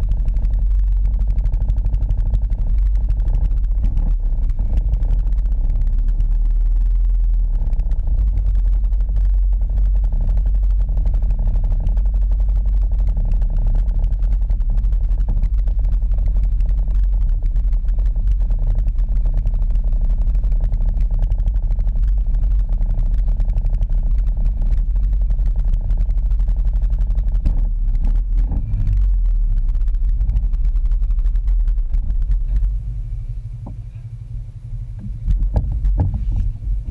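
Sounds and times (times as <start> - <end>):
atv engine idling: 0.0 - 36.9.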